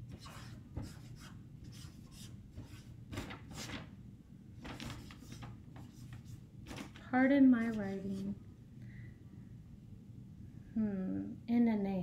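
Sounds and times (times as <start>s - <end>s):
marker writing on paper: 0.1s - 3.7s.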